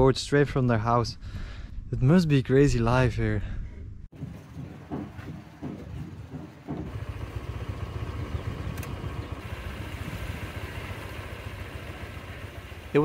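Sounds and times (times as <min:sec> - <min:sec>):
small engine running: 0:04.4 - 0:13.0
sharp click: 0:08.7 - 0:09.0.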